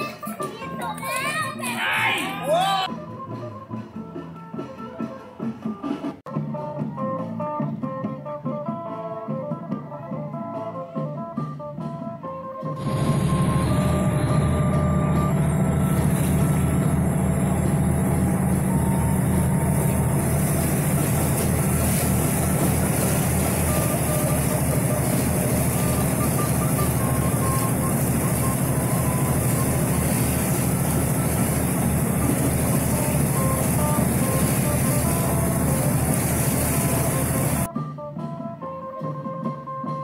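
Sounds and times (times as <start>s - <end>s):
boat engine rumbling: 12.8s - 37.7s
wind and water rushing: 12.8s - 37.7s.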